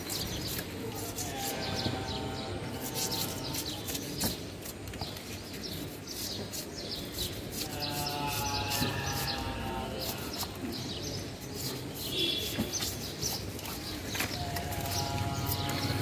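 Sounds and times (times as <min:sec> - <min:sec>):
birds chirping: 0:00.0 - 0:16.0
knife scraping fish scales: 0:00.1 - 0:02.0, 0:02.6 - 0:04.8, 0:05.7 - 0:10.7.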